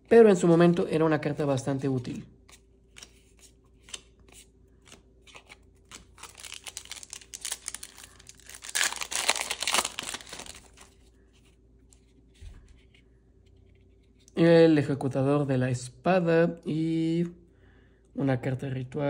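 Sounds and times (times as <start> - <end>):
card pack crinkling and rustling: 2.8 - 11.2.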